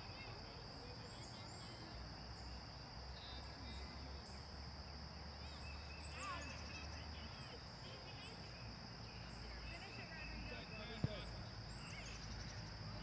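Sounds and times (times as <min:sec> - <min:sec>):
faint bird chirps: 0:00.0 - 0:04.6, 0:05.3 - 0:13.0.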